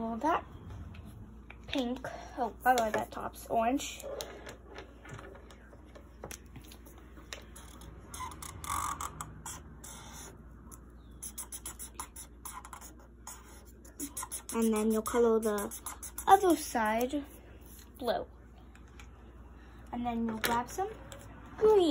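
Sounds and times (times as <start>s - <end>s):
marker scratching on paper: 6.6s - 10.4s, 11.1s - 18.0s.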